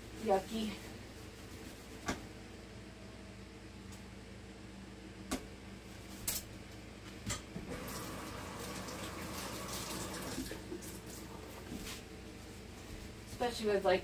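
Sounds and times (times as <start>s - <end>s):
tap running water into sink: 7.6s - 11.2s.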